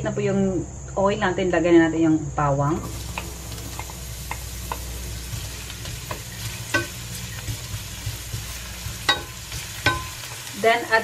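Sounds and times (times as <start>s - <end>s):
onion sizzling in oil: 2.7s - 11.0s
wooden spatula knocking pan: 3.1s - 10.5s.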